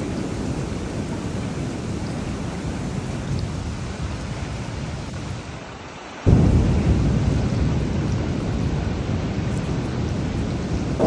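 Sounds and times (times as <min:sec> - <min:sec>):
low thunder rumbling: 0:00.0 - 0:05.4, 0:06.3 - 0:11.0
steady rain: 0:00.0 - 0:11.0
loud thunderclap: 0:06.3 - 0:11.0.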